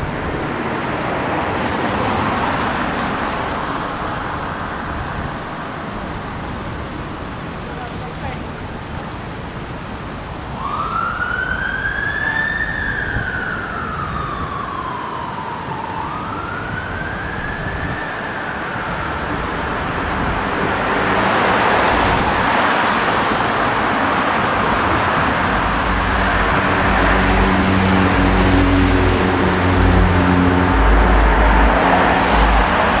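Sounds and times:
ambulance siren wailing: 0.0s - 5.6s, 10.5s - 33.0s
traffic rushing noise: 0.0s - 33.0s
low rumble: 24.5s - 33.0s.

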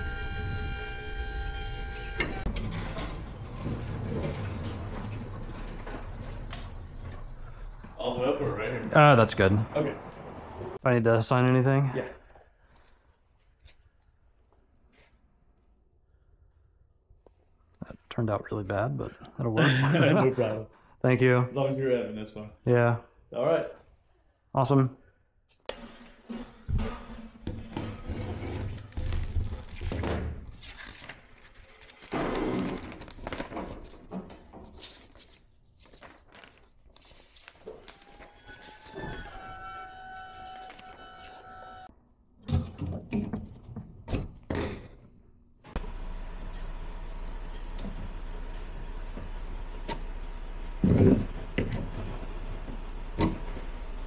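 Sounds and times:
paper and plastic rustling: 28.7s - 39.3s.

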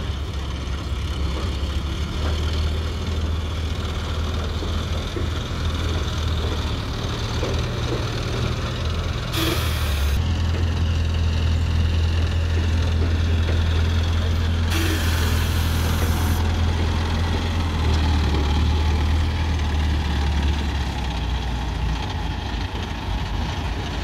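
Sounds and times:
diesel engine droning: 0.0s - 24.0s
hiss: 9.4s - 10.2s, 14.7s - 16.4s.

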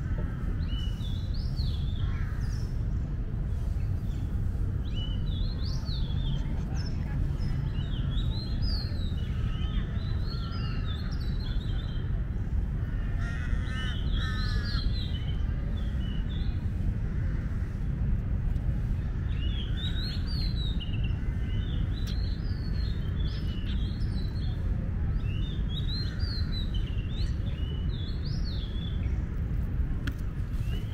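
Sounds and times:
steady low rumble: 0.0s - 30.9s
birds twittering: 12.8s - 17.8s, 18.8s - 30.9s.

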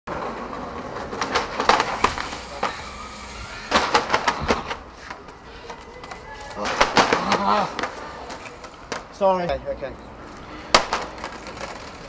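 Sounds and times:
steady background hum: 0.1s - 9.1s.

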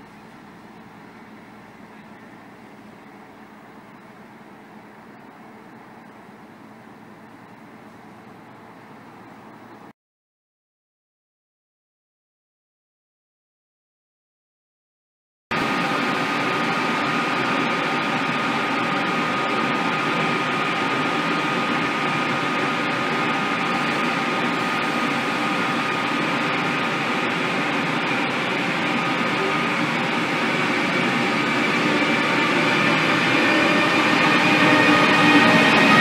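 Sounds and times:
electric locomotive whine: 0.0s - 9.9s, 15.5s - 36.0s
hum of blowers: 15.6s - 36.0s.

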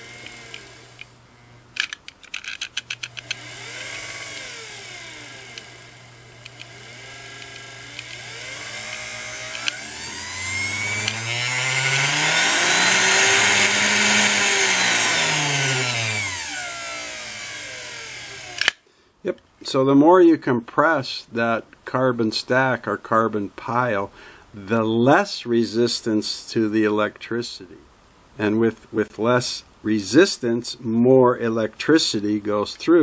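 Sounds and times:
sewing machine motor running: 0.0s - 1.0s, 3.2s - 18.6s
quick clicks: 1.8s - 5.8s, 6.4s - 9.9s.

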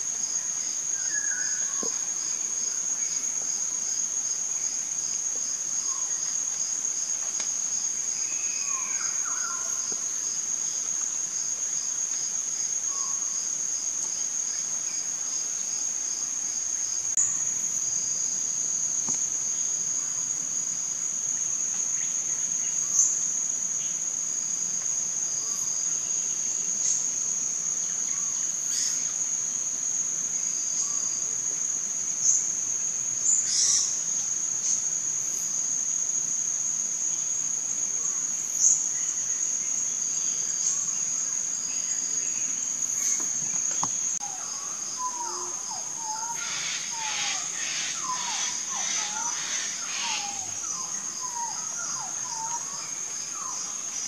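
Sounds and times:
pulsing insect: 0.0s - 54.0s
high-pitched insect drone: 8.0s - 10.3s, 32.1s - 54.0s.

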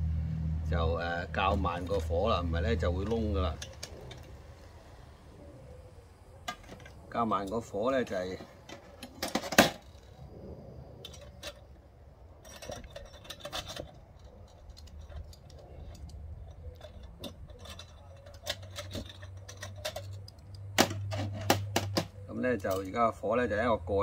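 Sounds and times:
low steady hum: 0.0s - 24.0s
light metal clicks and clinks: 12.3s - 21.5s, 22.5s - 23.1s.

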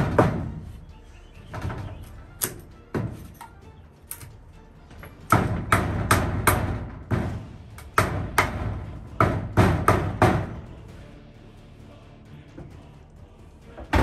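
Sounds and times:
hammer driving nails into wood: 0.0s - 0.6s, 5.2s - 10.6s.

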